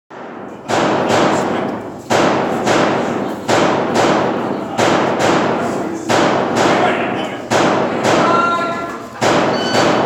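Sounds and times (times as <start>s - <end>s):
pistol shots ringing: 9.2s - 10.0s.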